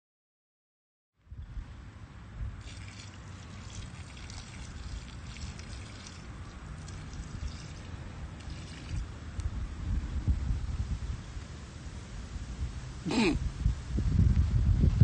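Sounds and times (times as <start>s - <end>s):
water splashing onto dirt: 2.6s - 9.1s.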